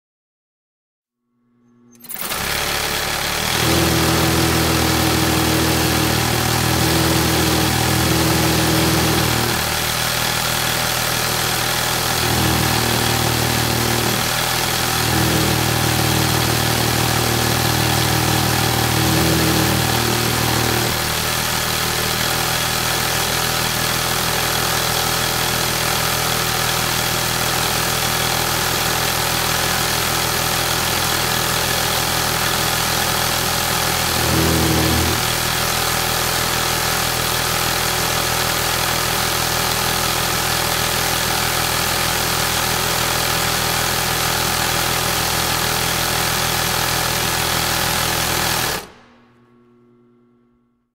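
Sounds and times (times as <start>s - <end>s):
industrial sewing machine running: 1.9s - 49.7s.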